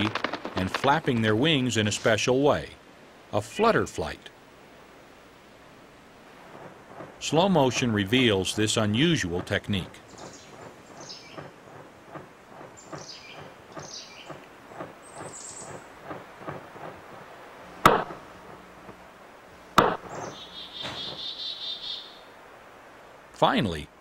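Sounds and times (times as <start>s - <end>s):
sharp wing claps: 0.0s - 1.3s, 10.2s - 17.1s
high thin bird chirps: 10.0s - 16.6s, 19.9s - 22.3s
wingbeat knocks: 10.2s - 17.2s, 17.8s - 19.0s, 19.8s - 21.2s.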